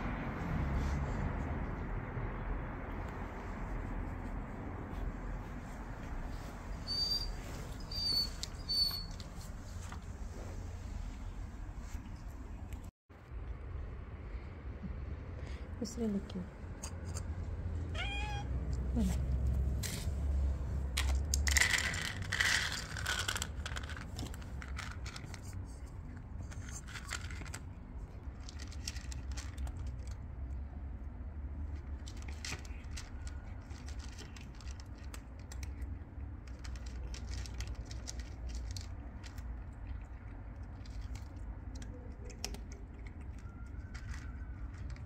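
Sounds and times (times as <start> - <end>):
cat meowing: 17.9 - 18.6
kibble rattling into plastic dish: 20.9 - 25.6
cat crunching kibble: 21.0 - 30.8, 31.6 - 45.0.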